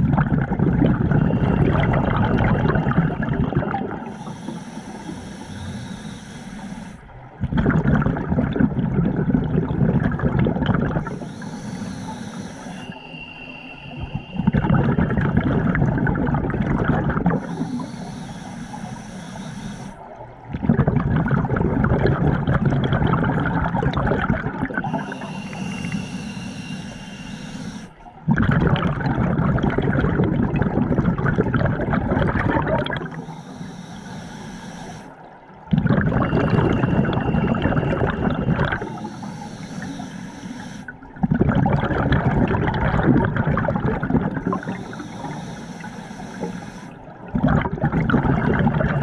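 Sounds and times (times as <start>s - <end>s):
exhalation bubbles rushing underwater: 0.0s - 4.2s, 7.3s - 11.3s, 14.0s - 17.9s, 20.0s - 26.0s, 28.1s - 33.3s, 35.3s - 39.2s, 40.9s - 46.4s, 47.0s - 49.0s
hissing regulator inhalations: 1.0s - 7.2s, 10.9s - 21.0s, 23.6s - 28.2s, 32.3s - 35.4s, 36.0s - 41.1s, 44.2s - 47.3s.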